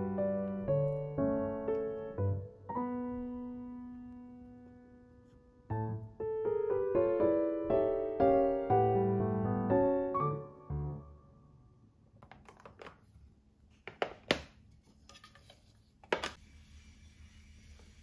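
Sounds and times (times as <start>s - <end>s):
soft piano music: 0.0s - 11.9s.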